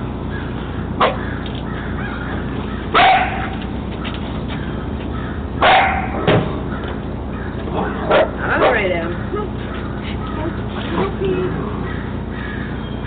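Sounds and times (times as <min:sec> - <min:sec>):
puppy barking: 0:01.0 - 0:01.3, 0:02.9 - 0:03.7, 0:05.6 - 0:06.2, 0:07.8 - 0:09.0.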